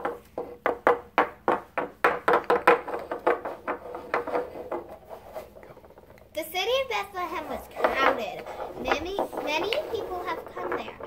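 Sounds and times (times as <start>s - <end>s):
wooden figures tapping on table: 0.0s - 5.0s, 7.7s - 11.0s.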